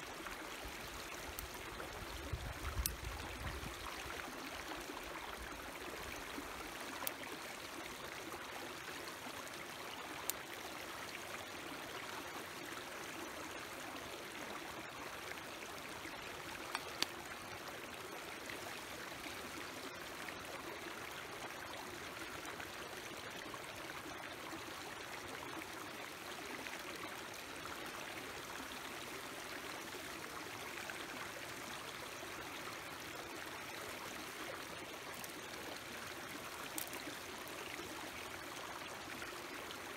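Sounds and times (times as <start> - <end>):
stream running over stones: 0.0 - 39.9.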